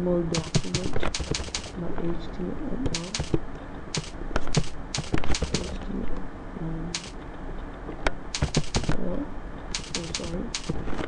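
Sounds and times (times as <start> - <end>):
keyboard typing: 0.4 - 1.8, 2.8 - 5.8, 6.9 - 7.2, 8.3 - 9.0, 9.7 - 11.0.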